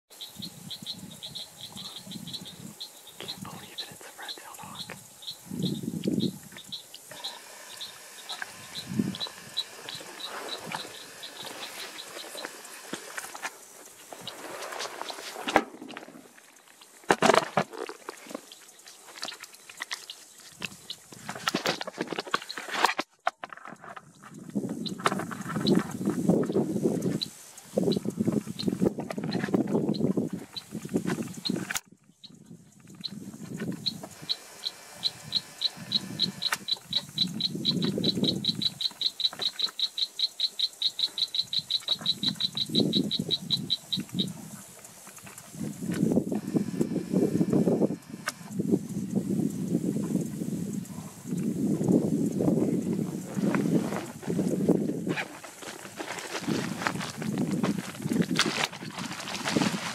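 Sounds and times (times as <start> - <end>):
small animal clicking call: 32.8 - 46.1.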